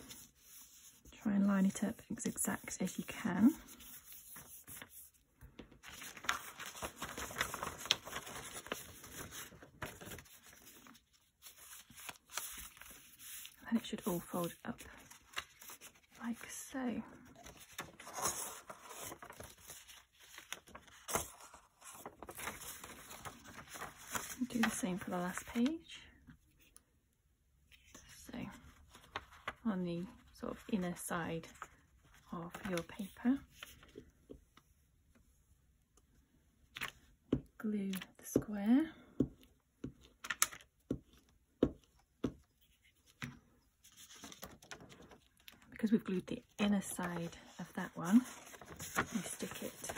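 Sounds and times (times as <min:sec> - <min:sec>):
paper rustling and crinkling: 0:00.0 - 0:25.8, 0:27.7 - 0:29.7, 0:31.4 - 0:34.7, 0:39.9 - 0:49.9
sharp paper crackles: 0:05.8 - 0:14.0, 0:17.4 - 0:25.6, 0:46.8 - 0:49.9.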